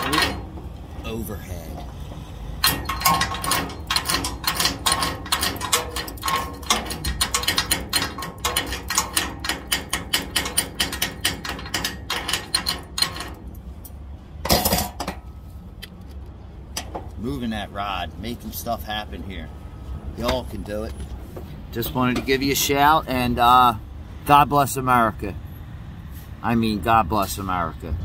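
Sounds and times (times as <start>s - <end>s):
hammer tapping on metal: 2.6s - 13.3s.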